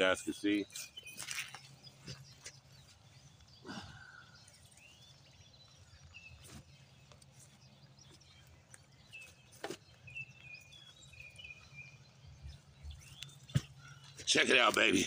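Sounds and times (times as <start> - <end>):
faint birds chirping: 0.0 - 15.0.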